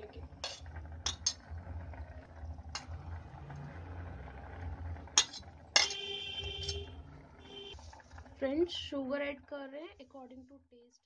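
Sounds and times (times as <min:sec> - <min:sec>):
low steady rumble: 0:00.0 - 0:10.8
spoon clinking against metal pot: 0:00.4 - 0:01.4, 0:05.2 - 0:06.9.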